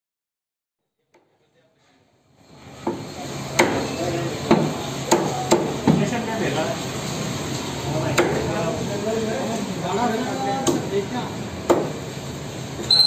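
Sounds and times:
cleaver chopping on wooden block: 11.7 - 12.0.

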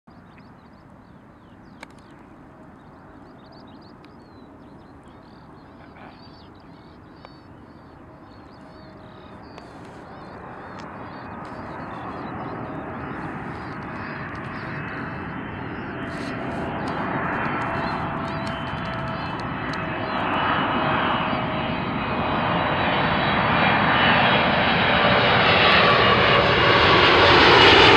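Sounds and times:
birds chirping: 0.1 - 21.6
distant jet engines: 0.1 - 27.9.

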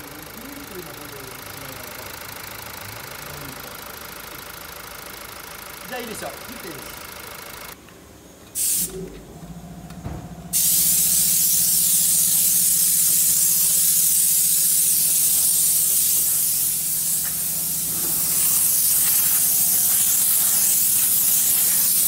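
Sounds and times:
car engine idling: 0.0 - 7.8, 14.6 - 21.1
compressed air hissing: 8.5 - 9.1, 10.5 - 22.0.

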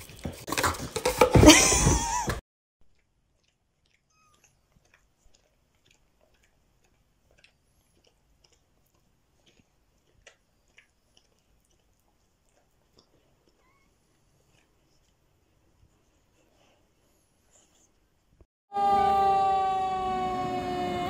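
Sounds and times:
clicks of licking and suckling: 2.8 - 15.9.

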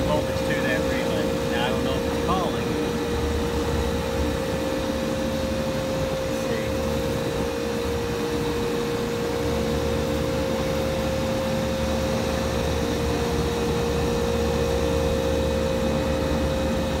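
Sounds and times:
even rushing air noise: 0.0 - 13.3
rooftop unit mechanical hum: 0.0 - 17.0.

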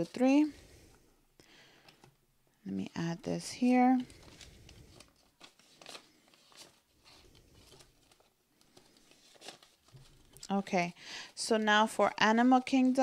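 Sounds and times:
banknotes rustling while counted: 2.8 - 13.0.

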